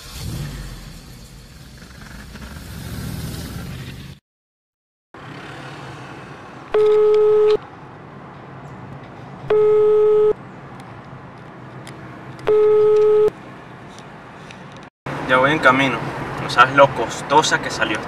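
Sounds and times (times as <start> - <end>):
road and engine noise in car: 5.2 - 18.0
telephone ringback tone: 6.8 - 7.6, 9.5 - 10.4, 12.5 - 13.3.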